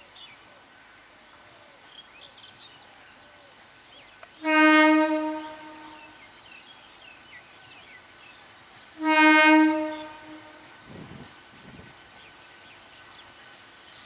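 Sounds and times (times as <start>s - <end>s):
train horn blast: 4.4s - 6.2s, 9.0s - 10.8s.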